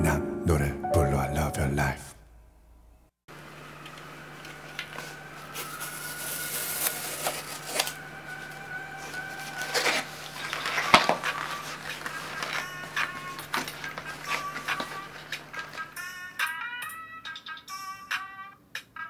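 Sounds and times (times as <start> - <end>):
rustling: 3.4 - 16.5
cardboard flaps scraping: 4.6 - 15.9
tear strips ripping: 5.0 - 15.9.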